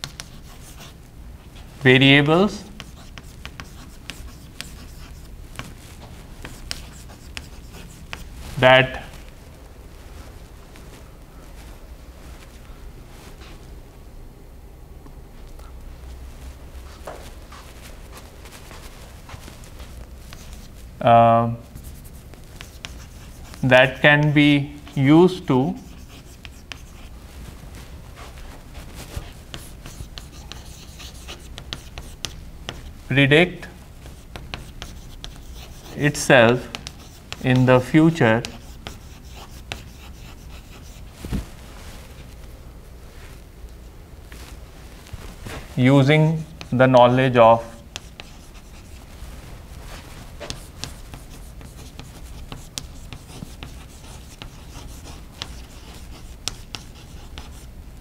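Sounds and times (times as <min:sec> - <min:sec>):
chalk scratching on blackboard: 0:00.0 - 0:01.0, 0:02.5 - 0:09.1, 0:17.0 - 0:20.7, 0:21.7 - 0:27.1, 0:29.0 - 0:32.9, 0:33.6 - 0:41.1, 0:45.8 - 0:49.1, 0:49.9 - 0:57.7
steady low hum: 0:00.0 - 0:58.0.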